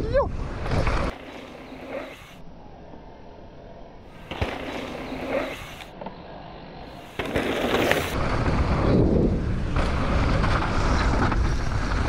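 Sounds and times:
bike tyre noise: 0.3 - 2.4, 4.1 - 12.0
wind rumbling on microphone: 8.0 - 12.0.

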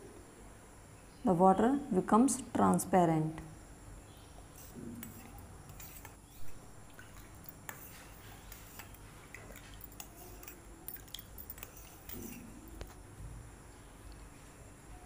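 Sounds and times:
spoon stirring water in bowl: 4.5 - 13.0.

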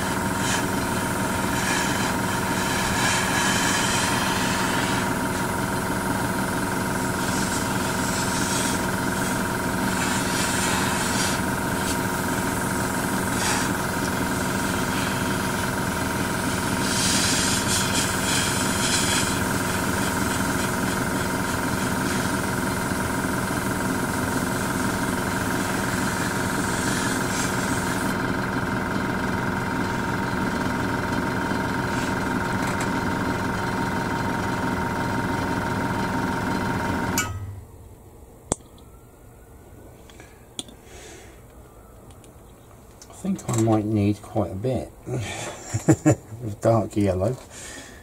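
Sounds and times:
airbrush hissing: 0.0 - 28.2
compressor motor hum: 0.0 - 48.0.

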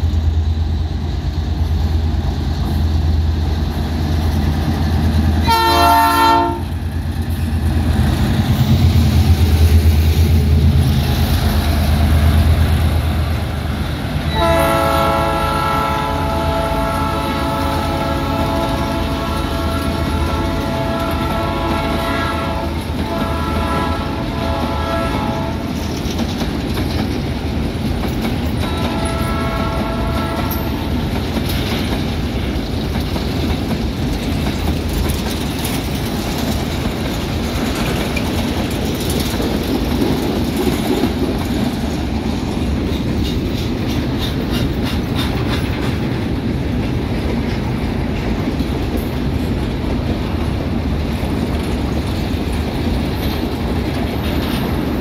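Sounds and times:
freight train rumbling past: 0.0 - 55.0
wheels clicking over rail joints: 0.0 - 55.0
locomotive horn: 5.4 - 6.8, 14.3 - 25.7, 28.6 - 30.8.

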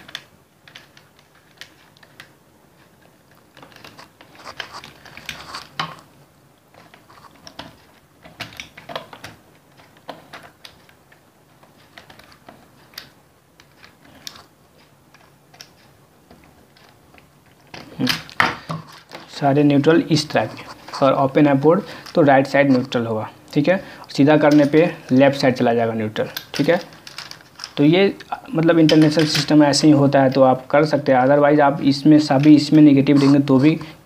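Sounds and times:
clicks and scrapes of wiring terminals: 0.0 - 6.1, 6.7 - 23.0, 26.2 - 30.4.

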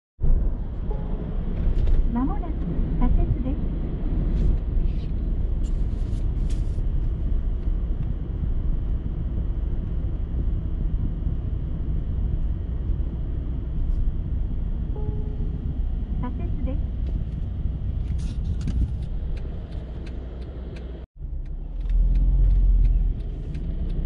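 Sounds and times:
car cabin road rumble: 0.2 - 24.0.

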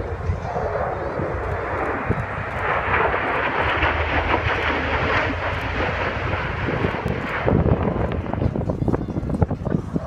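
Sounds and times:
aircraft flying over: 0.0 - 10.0.

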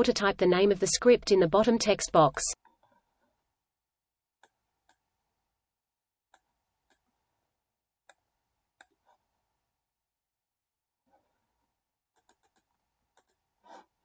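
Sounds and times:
computer mouse clicks: 12.2 - 13.4.

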